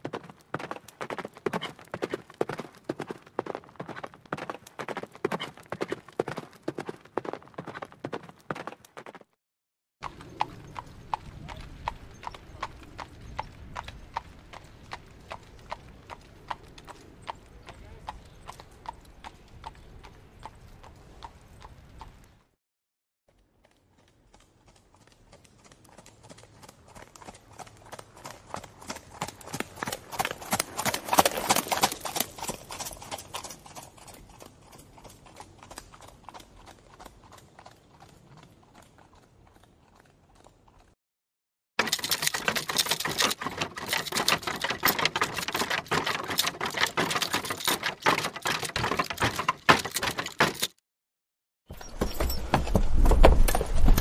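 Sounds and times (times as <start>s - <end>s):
horse hoofbeats: 0.0s - 9.3s, 23.6s - 41.0s, 41.8s - 50.8s, 51.7s - 54.0s.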